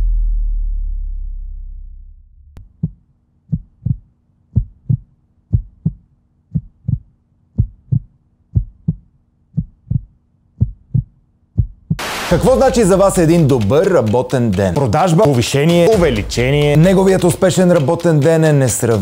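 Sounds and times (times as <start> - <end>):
heartbeat double thump: 2.6 - 13.2.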